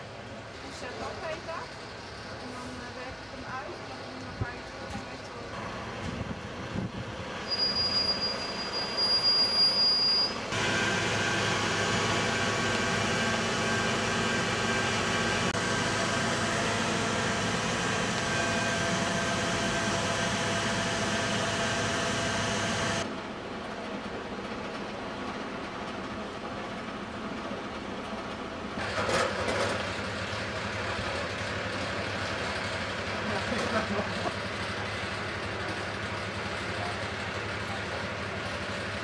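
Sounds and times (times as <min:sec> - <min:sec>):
fire truck engine and hydraulics drone: 0:00.0 - 0:39.0
high steady squeal: 0:07.4 - 0:15.0.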